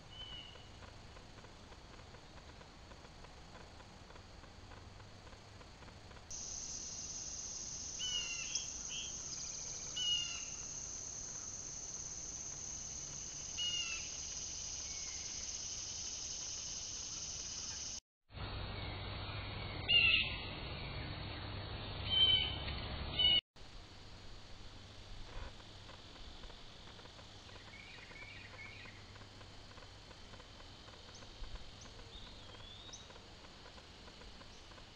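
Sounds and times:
birds calling: 7.9 - 10.6, 13.5 - 15.5.

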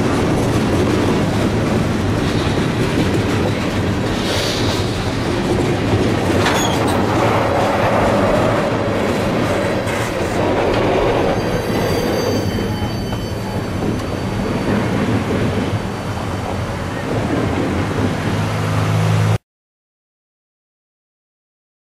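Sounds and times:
train wheels rumbling on rail: 0.0 - 19.4
faint wheel squeal: 11.3 - 14.8.

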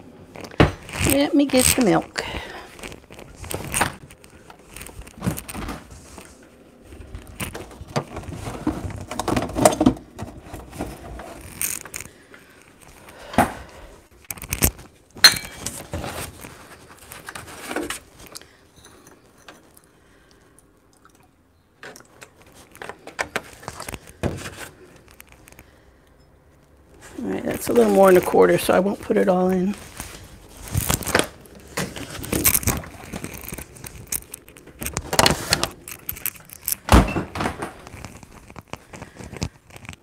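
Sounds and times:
utensils and containers clinking: 15.2 - 16.2.

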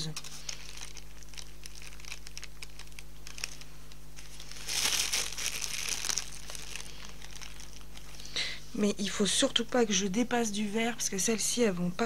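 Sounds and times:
plastic piping bag crinkling: 0.0 - 8.4.

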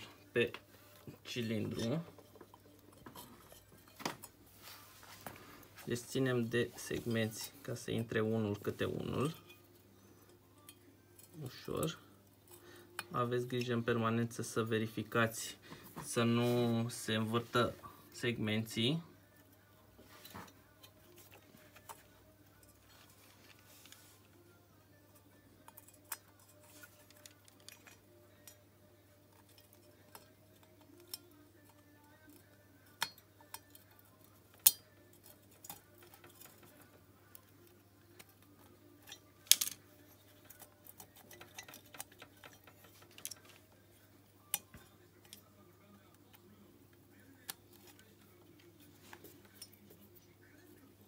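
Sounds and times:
light metal clicks and taps: 40.4 - 43.8.

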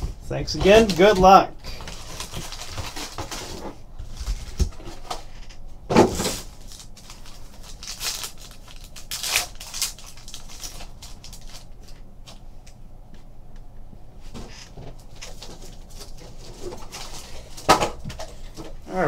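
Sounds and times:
foil wrappers crinkling and tearing: 0.6 - 5.2, 6.1 - 12.4, 15.1 - 18.7.

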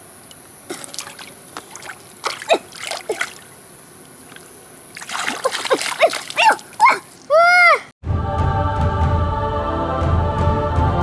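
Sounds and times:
hands splashing in water: 0.7 - 7.3.

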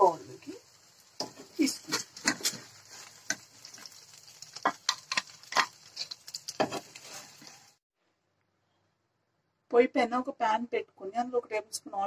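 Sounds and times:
oil sizzling: 0.0 - 7.9
spoon scraping a metal pan: 4.7 - 7.6.

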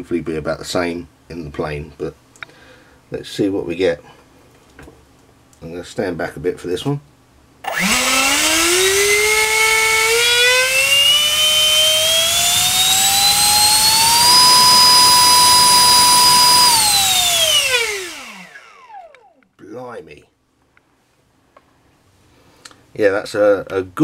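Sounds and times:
electric fan motor whine: 7.6 - 19.5.

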